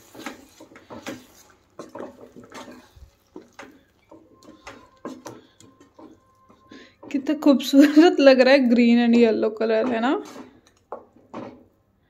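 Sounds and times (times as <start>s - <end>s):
spoon scraping wet food: 0.0s - 8.0s, 8.6s - 11.7s
spoon knocking against pan: 0.2s - 7.3s.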